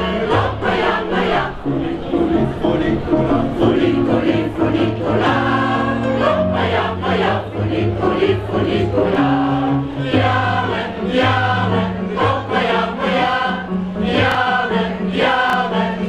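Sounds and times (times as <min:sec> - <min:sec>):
vocal group singing in harmony: 0:00.0 - 0:16.0.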